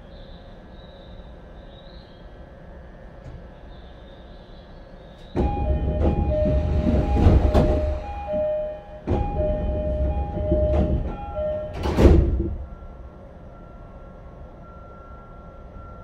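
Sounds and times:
sliding doors clunking: 0:05.2 - 0:12.8
doors shutting thud: 0:05.3 - 0:12.7
two-tone door chime: 0:05.4 - 0:16.0
faint steady tone: 0:12.6 - 0:16.0.

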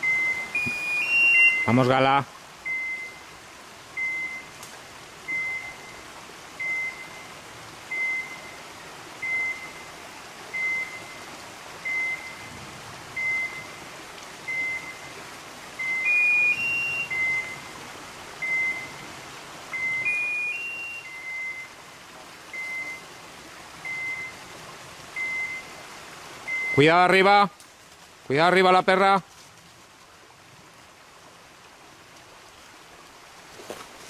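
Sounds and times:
high electronic beeps: 0:00.0 - 0:01.9, 0:02.7 - 0:03.2, 0:13.2 - 0:13.7, 0:14.5 - 0:15.0, 0:15.8 - 0:17.6, 0:18.4 - 0:19.0, 0:19.8 - 0:21.7, 0:25.2 - 0:25.7, 0:26.5 - 0:27.0
rising run of beeps: 0:00.0 - 0:01.9, 0:02.6 - 0:03.2, 0:04.0 - 0:04.5, 0:05.3 - 0:06.0, 0:06.6 - 0:07.3, 0:07.9 - 0:08.6, 0:09.2 - 0:09.8, 0:10.5 - 0:11.2, 0:11.8 - 0:12.6, 0:13.2 - 0:13.8, 0:14.5 - 0:15.1, 0:15.8 - 0:17.7, 0:18.4 - 0:19.0, 0:19.7 - 0:21.8, 0:22.5 - 0:23.0, 0:23.8 - 0:24.4, 0:25.2 - 0:25.7, 0:26.4 - 0:27.0.

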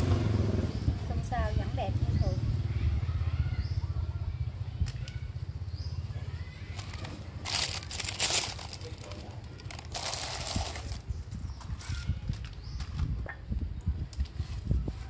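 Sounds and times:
crisp sheet crinkling: 0:06.8 - 0:11.1.

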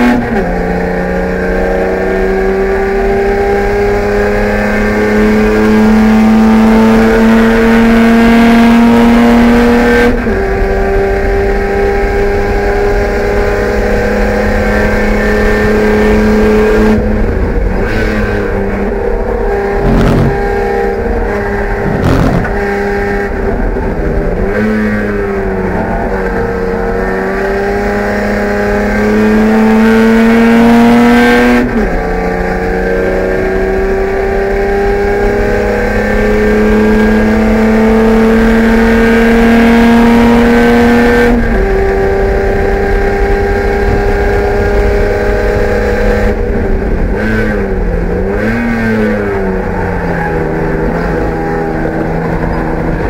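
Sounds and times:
race car engine accelerating: 0:00.0 - 0:53.0
short knocks: 0:21.8 - 0:22.6.

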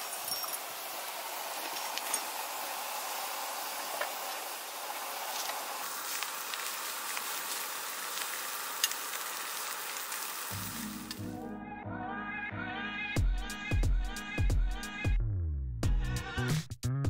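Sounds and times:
meat sizzling on a grill: 0:00.0 - 0:11.4.

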